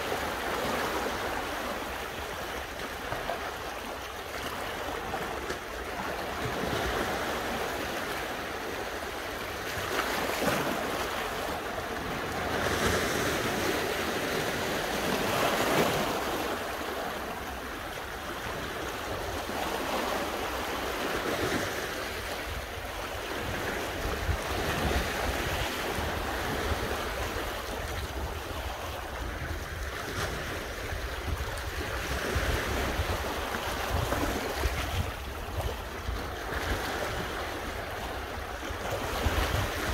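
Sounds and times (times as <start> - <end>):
sea waves washing on rocks: 0.0 - 39.9
wind buffeting microphone: 22.1 - 39.9.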